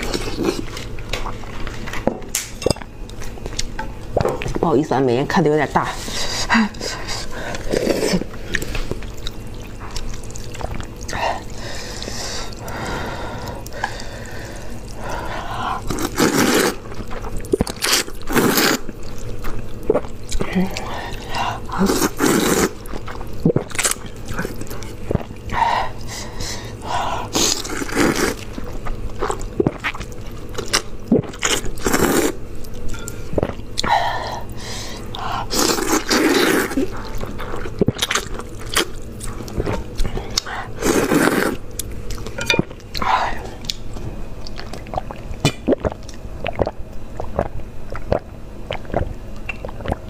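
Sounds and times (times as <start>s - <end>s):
wet chewing clicks: 8.4s - 11.2s, 41.7s - 50.0s
noodles slurped: 13.4s - 25.4s, 27.3s - 28.6s, 35.2s - 41.6s.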